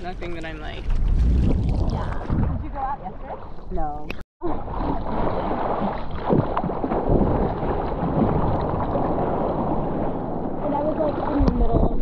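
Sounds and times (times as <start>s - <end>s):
wind noise: 0.0s - 4.2s, 4.8s - 12.0s
ocean water sloshing and splashing: 0.0s - 12.0s.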